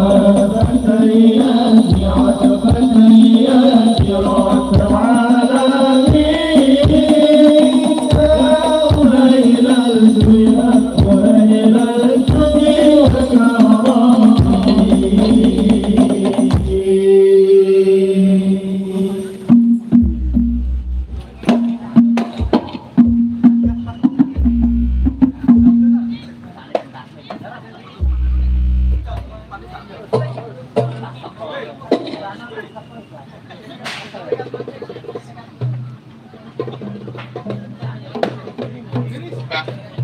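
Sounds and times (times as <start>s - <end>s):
deep drum beat: 0.0s - 5.3s, 6.0s - 9.4s, 10.1s - 16.9s, 19.5s - 26.1s, 28.0s - 30.3s
frame drums: 0.0s - 17.1s, 19.4s - 26.4s, 28.0s - 31.2s
devotional singing: 0.0s - 19.5s
held note: 28.0s - 29.8s.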